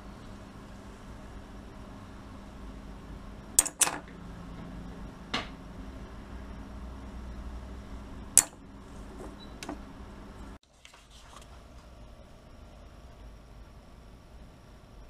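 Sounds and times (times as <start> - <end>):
sharp metal clicks: 3.6 - 4.1, 8.4 - 8.6.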